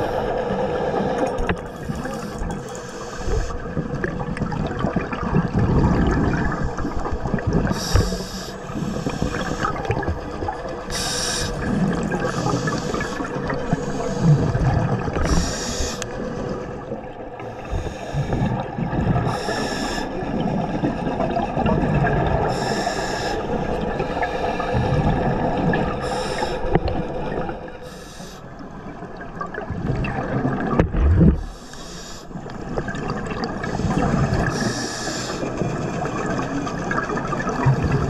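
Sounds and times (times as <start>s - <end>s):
exhaled air bubbling: 0.0s - 38.0s
regulator inhalation hiss: 7.8s - 9.8s, 10.9s - 11.7s, 15.2s - 16.0s, 22.5s - 23.5s, 27.8s - 28.5s, 31.5s - 32.4s, 34.5s - 35.5s.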